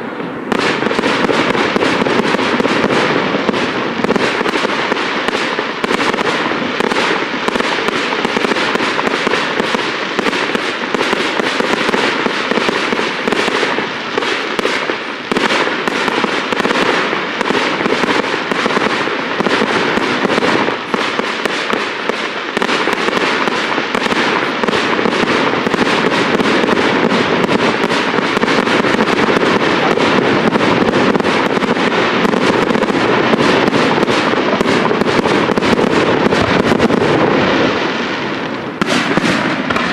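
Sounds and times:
fireworks bursting: 0.0s - 39.9s
fireworks crackling: 0.0s - 39.9s.

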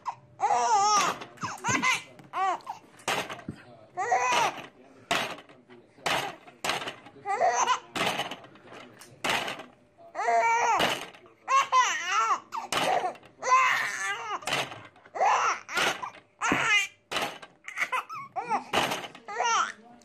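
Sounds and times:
baby laughing: 0.0s - 2.8s.

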